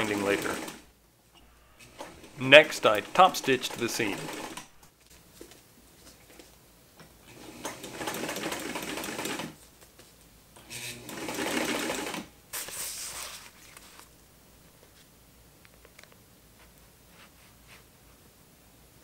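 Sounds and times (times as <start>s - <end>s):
sewing machine running: 0.0s - 0.9s, 1.8s - 4.8s, 7.3s - 9.6s, 10.7s - 12.3s.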